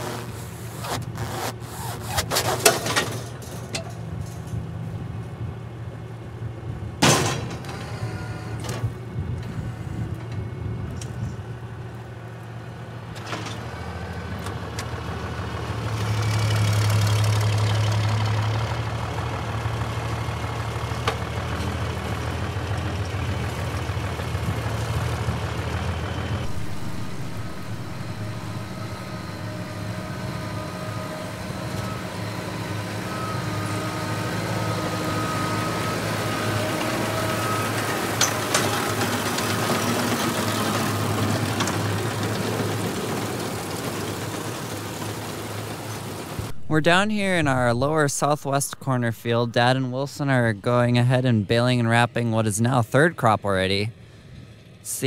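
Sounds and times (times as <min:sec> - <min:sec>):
tractor engines running: 0:00.0 - 0:55.0
faint steady whine: 0:26.0 - 0:37.7.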